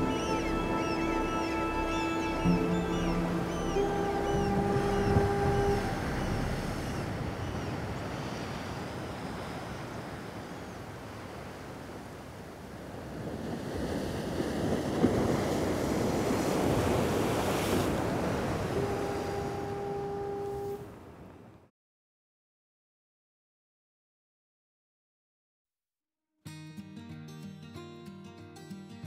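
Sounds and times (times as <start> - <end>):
wind on microphone: 0.0 - 10.5
small waves washing on beach: 4.2 - 21.5.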